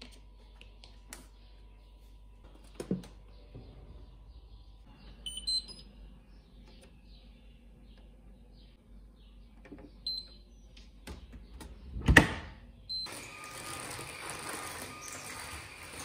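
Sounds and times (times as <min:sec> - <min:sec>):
high electronic beeps: 0:05.2 - 0:05.9.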